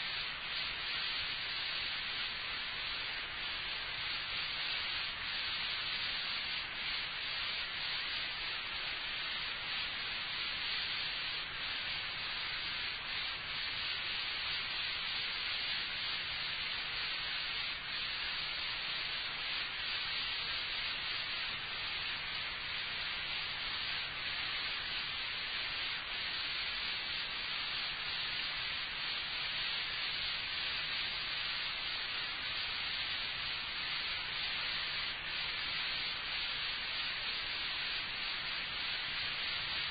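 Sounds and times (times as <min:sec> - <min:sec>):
tape hiss: 0:00.0 - 0:39.9.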